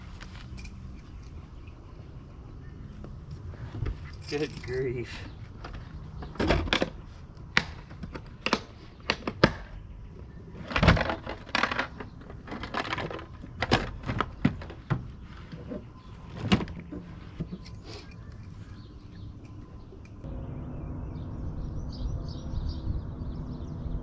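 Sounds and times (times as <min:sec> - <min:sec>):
fishing gear knocks and clatter: 0:03.8 - 0:07.0, 0:10.6 - 0:18.6.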